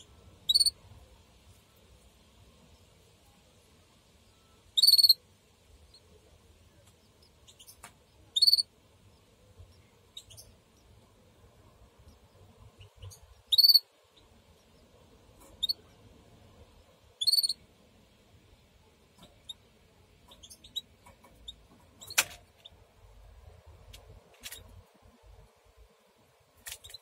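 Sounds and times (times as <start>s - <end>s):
bird chicks squeaking: 0.4s - 0.8s, 4.8s - 5.2s, 7.2s - 8.7s, 9.7s - 11.0s, 12.0s - 14.9s, 15.5s - 15.9s, 17.2s - 17.6s, 20.2s - 22.8s, 26.6s - 27.0s.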